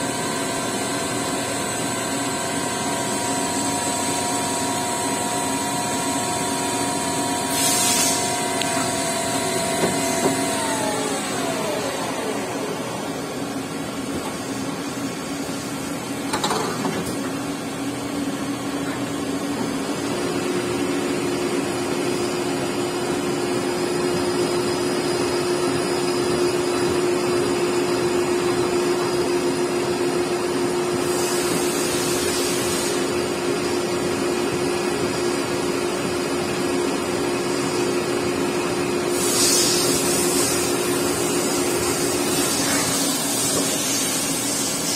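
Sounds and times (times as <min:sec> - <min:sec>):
steady machine tone: 0:00.0 - 0:16.1
machine hum: 0:00.0 - 0:16.6
brief hisses: 0:07.5 - 0:08.3.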